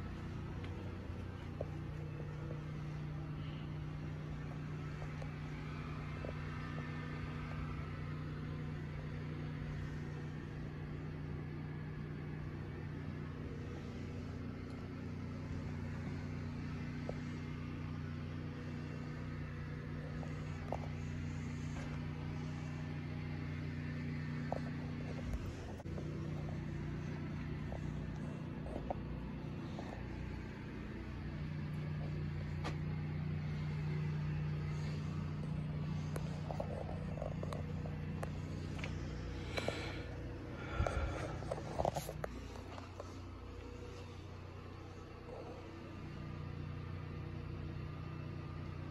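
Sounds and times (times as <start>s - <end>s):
low machine hum: 0.0s - 48.9s.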